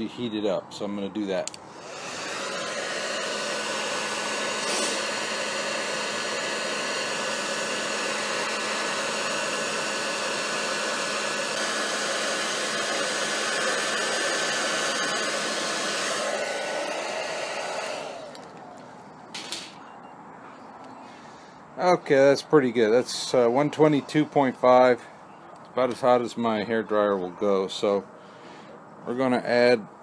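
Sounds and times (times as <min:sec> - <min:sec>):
hair dryer running: 0:01.7 - 0:18.6.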